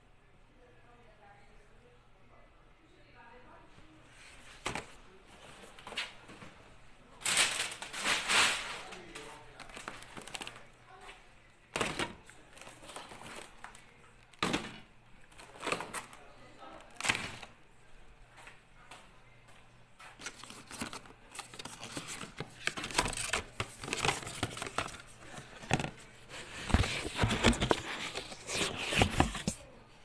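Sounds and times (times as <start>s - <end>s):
crinkling: 20.0s - 29.7s
rustling close to microphone: 20.2s - 29.7s.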